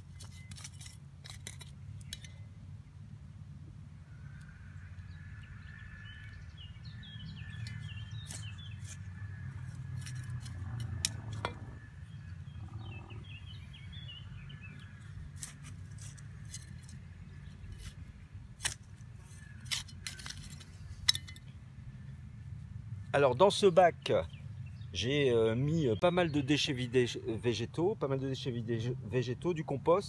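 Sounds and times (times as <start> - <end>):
trowel clicking and scraping soil: 0.0 - 2.4, 7.5 - 11.7, 15.3 - 21.5
steady low rumble: 1.0 - 23.3.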